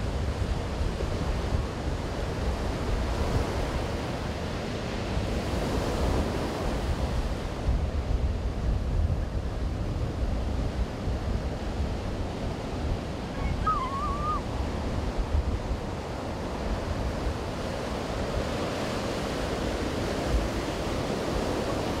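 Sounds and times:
wind on microphone: 0.0s - 22.0s
wavering whistle-like call: 13.4s - 14.4s.

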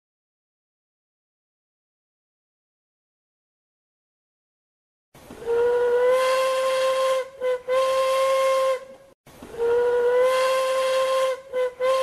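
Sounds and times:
steam locomotive whistle blasts: 5.4s - 12.0s.

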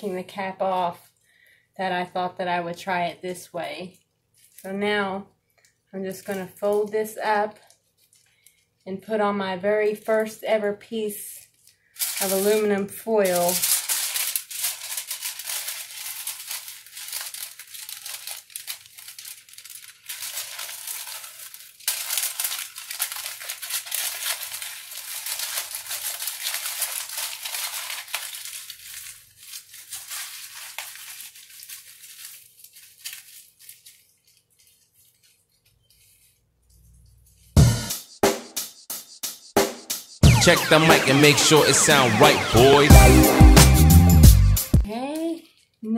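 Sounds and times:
aluminium foil crinkling: 3.8s - 4.9s, 5.5s - 8.9s, 9.8s - 37.6s
loud music with heavy beat: 37.6s - 44.9s.

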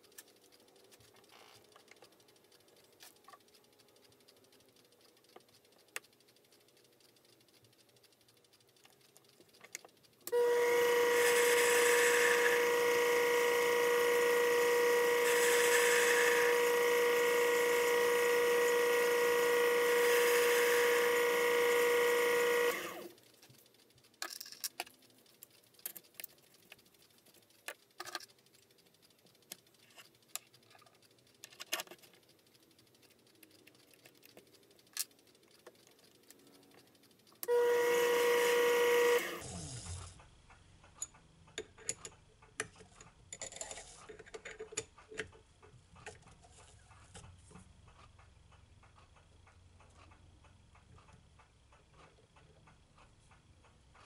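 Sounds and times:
light clicks and taps: 0.0s - 10.4s, 22.7s - 37.5s
micro lathe whining: 10.3s - 23.2s, 37.5s - 40.1s.

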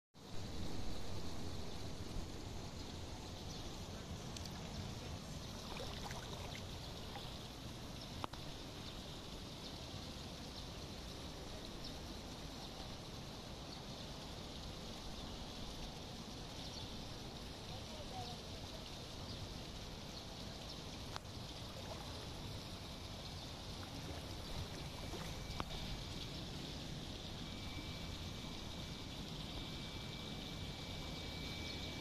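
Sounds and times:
fountain water splashing: 2.0s - 27.4s.

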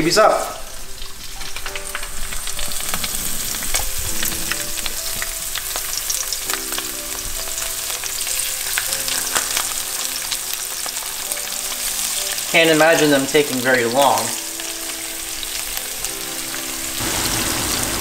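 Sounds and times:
fish sizzling in oil: 0.0s - 18.0s.

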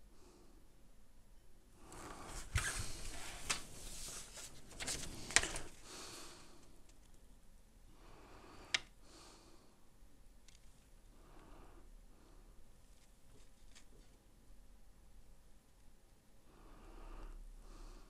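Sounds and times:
faint breathing: 1.7s - 6.9s, 7.8s - 9.9s, 11.1s - 12.7s, 16.4s - 18.0s.

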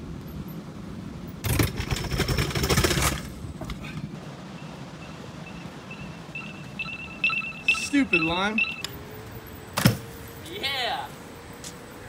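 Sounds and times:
high repeated alarm beeping: 4.6s - 8.9s.

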